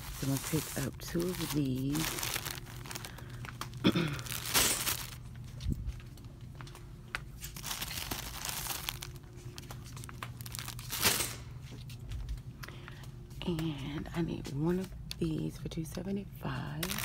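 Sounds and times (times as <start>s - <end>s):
plastic wrapping crinkling: 0.0s - 12.4s, 16.8s - 17.0s.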